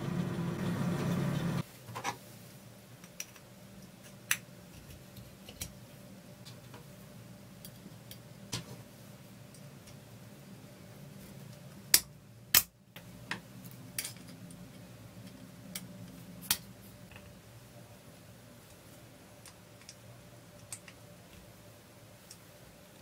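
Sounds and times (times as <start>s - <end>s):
faint steady hum: 0.0s - 23.0s
light clicks and taps of metal parts: 19.4s - 21.5s.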